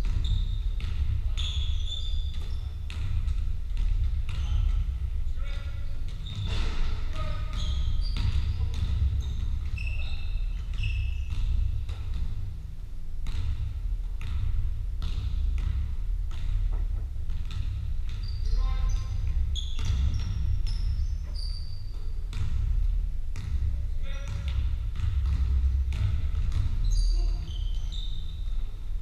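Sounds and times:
basketball bouncing on wooden floor: 0.0s - 29.0s
trainers squeaking on boards: 1.3s - 2.7s, 6.2s - 11.2s, 18.2s - 22.0s, 26.8s - 28.5s.

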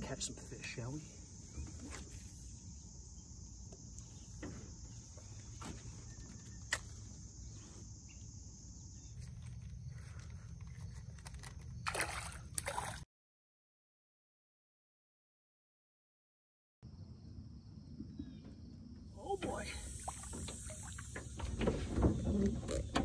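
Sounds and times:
high insect hum: 0.0s - 13.0s, 16.8s - 23.0s
water sloshing: 9.2s - 13.0s, 19.2s - 23.0s
fish splashing at the surface: 11.8s - 13.0s.

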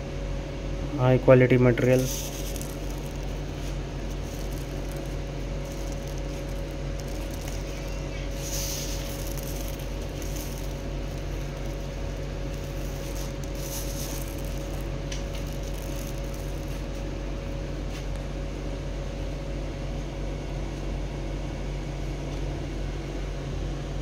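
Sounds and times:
mechanical hum with whine: 0.0s - 24.0s
plastic granules trickling: 1.7s - 18.0s.

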